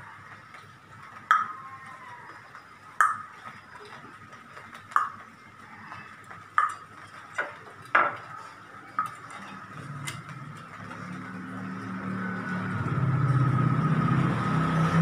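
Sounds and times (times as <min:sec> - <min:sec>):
water drops pinging on metal: 0:01.3 - 0:01.8, 0:02.4 - 0:04.2, 0:04.8 - 0:08.3.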